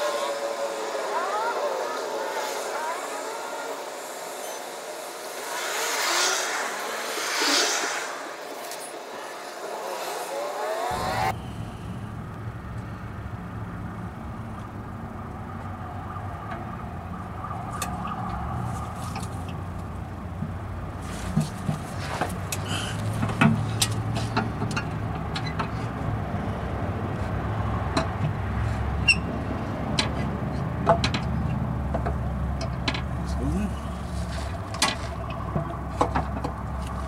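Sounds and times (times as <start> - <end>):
hiss: 0.0 - 11.4
steady low hum: 10.9 - 23.8.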